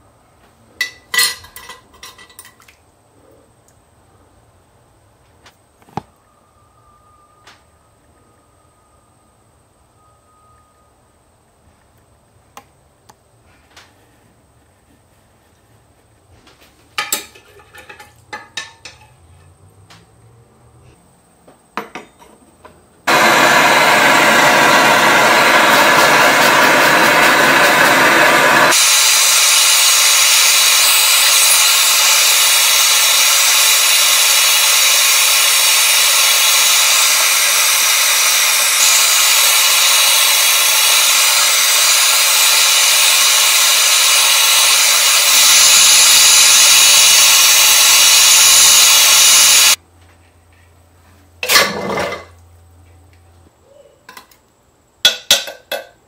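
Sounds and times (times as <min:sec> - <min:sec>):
gas torch hissing: 0:23.1 - 0:49.8.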